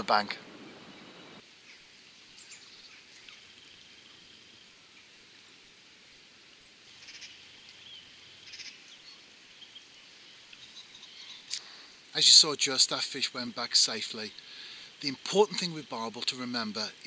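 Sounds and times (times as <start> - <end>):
small birds chirping: 0.0 - 5.8, 6.5 - 12.4.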